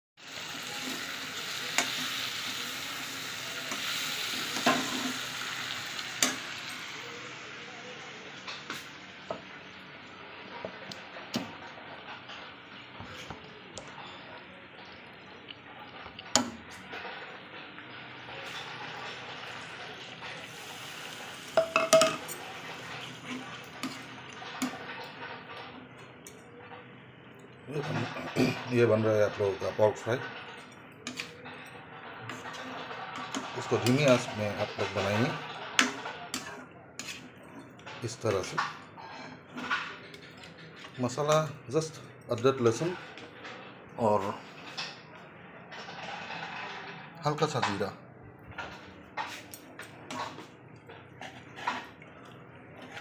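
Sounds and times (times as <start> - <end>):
meat sizzling in a pan: 0.2 - 9.8, 18.0 - 25.2
frying sizzle: 0.2 - 45.1
spatula scraping a pan: 17.9 - 26.2, 27.8 - 41.0, 45.7 - 47.2, 48.6 - 53.0
spatula clanking against pan: 21.6 - 22.3.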